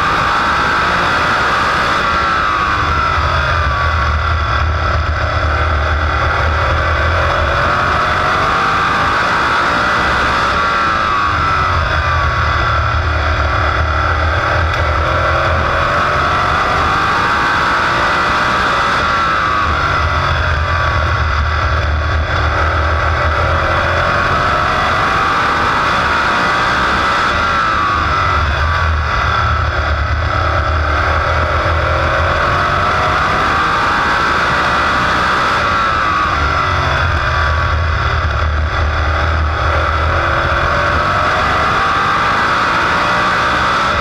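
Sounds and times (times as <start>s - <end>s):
racing car engine: 0.0s - 44.0s.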